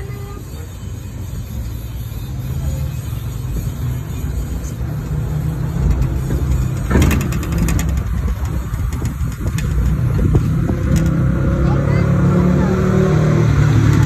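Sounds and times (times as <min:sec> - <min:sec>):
truck engine and road rumble: 0:00.0 - 0:14.0
clicking clatter: 0:05.8 - 0:11.2.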